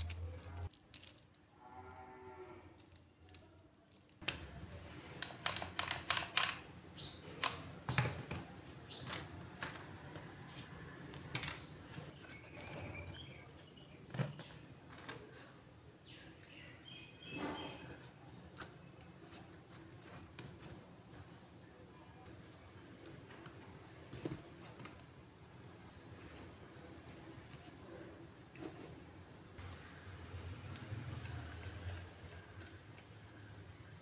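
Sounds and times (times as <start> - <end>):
plastic strips clicking: 0.0 - 1.5, 2.8 - 6.6.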